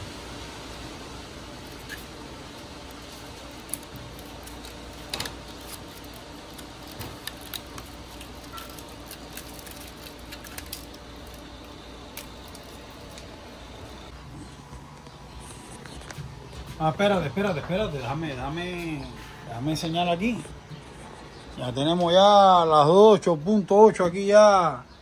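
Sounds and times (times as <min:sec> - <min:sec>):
plastic film crinkling: 0:01.6 - 0:14.1.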